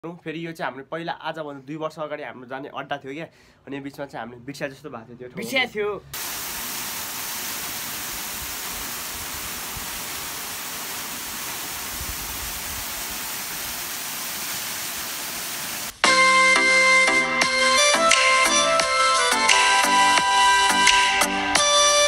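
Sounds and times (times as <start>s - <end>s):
waterfall pouring over rocks: 6.2s - 16.0s.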